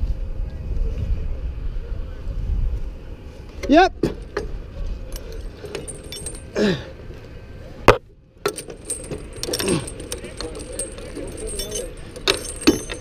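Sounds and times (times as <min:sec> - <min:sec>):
steel chain links rattling: 0:04.2 - 0:06.8, 0:08.4 - 0:13.0.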